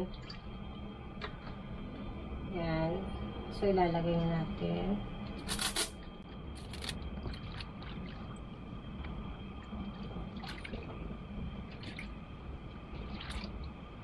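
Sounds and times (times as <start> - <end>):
water sloshing and dripping: 6.9 - 14.0.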